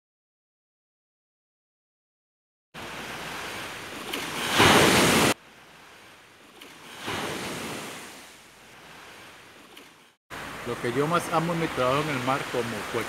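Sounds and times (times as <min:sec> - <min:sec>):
waves washing up a beach: 0:02.8 - 0:13.0.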